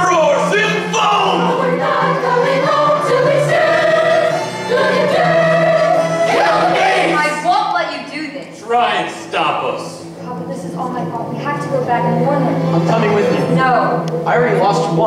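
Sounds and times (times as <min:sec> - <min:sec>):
musical accompaniment: 0:00.0 - 0:15.0
young voices singing in chorus: 0:00.1 - 0:07.4.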